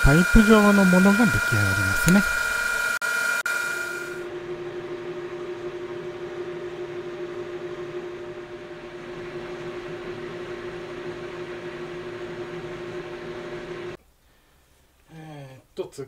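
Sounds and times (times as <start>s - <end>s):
drill boring through steel: 0.0s - 4.2s
metal lathe whining: 0.0s - 4.4s.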